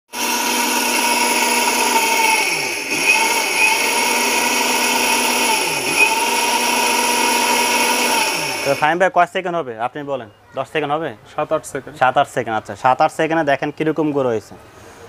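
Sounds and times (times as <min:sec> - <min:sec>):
mixer grinder motor whining: 0:00.1 - 0:08.9.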